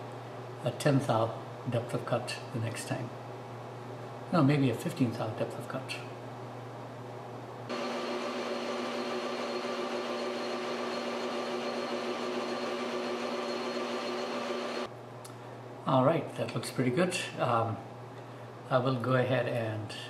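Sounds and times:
metal lathe whining: 7.7 - 14.9.

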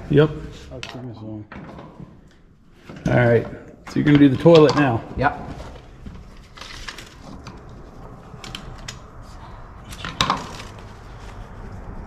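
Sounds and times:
hand tools clicking and knocking: 3.8 - 5.1.

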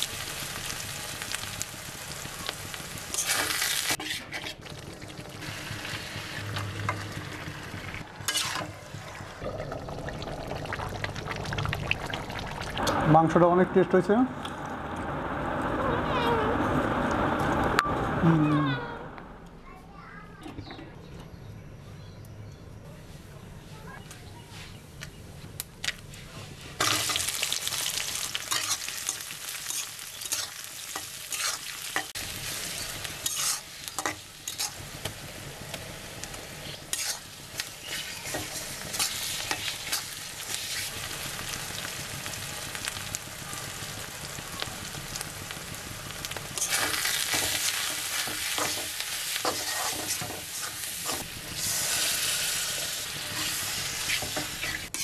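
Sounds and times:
onions sizzling in hot oil: 0.0 - 17.8, 26.8 - 55.0
metal spatula scraping a wok: 3.1 - 4.7, 8.2 - 8.8, 26.7 - 27.3, 28.4 - 34.8, 36.6 - 40.9, 46.6 - 55.0.

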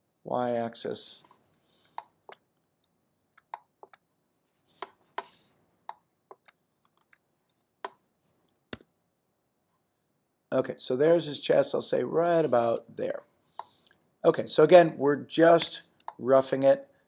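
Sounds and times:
mouse and keyboard clicks: 5.9 - 7.2.

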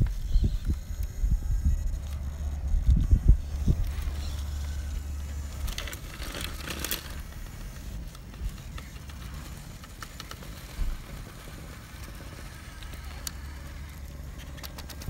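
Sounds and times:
wind rumble on microphone: 0.0 - 5.8
tyres scraping on rock: 3.8 - 15.0.

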